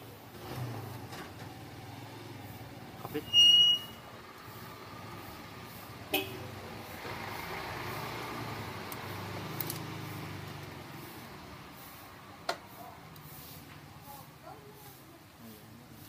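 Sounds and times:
low vehicle rumble: 0.0s - 14.6s
screwdriver metallic clicks: 9.6s - 9.9s.

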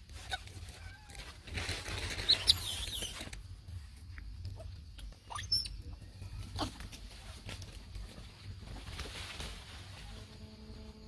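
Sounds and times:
rustling: 0.0s - 5.2s, 6.0s - 11.0s
baby monkey squeaking: 2.0s - 3.4s, 4.6s - 6.8s.

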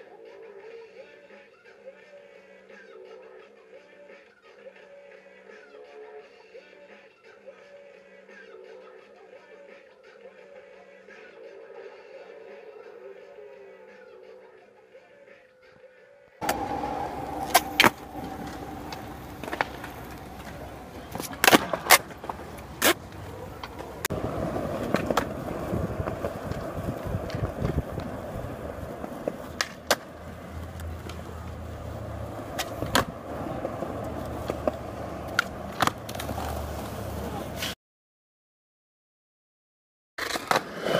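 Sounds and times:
skateboard clacks: 16.4s - 37.8s
skateboard wheels rolling on concrete: 16.4s - 37.8s, 40.2s - 40.9s.

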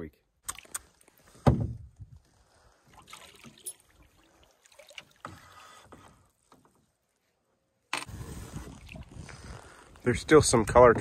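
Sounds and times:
paddle swishing through water: 8.1s - 10.0s.

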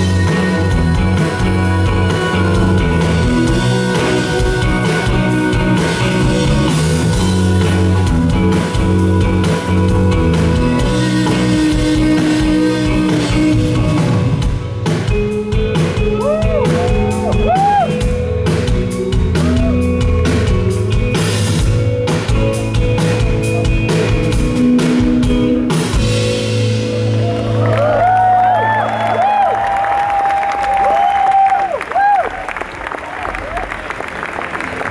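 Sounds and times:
person singing lead vocal: 0.0s - 14.2s
drum kit: 0.0s - 29.4s
electric guitars: 0.0s - 32.2s.

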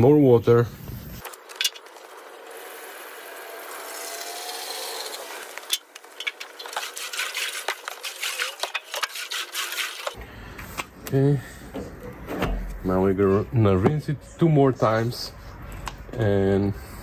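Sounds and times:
hose water rushing into tank: 2.5s - 10.2s.

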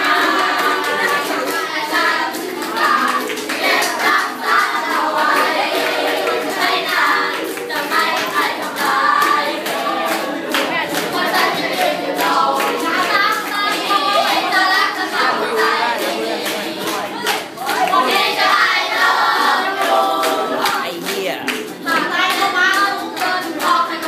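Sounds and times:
group singing: 0.0s - 24.0s
hand clapping: 0.0s - 24.0s
strummed ukuleles: 0.0s - 24.0s.

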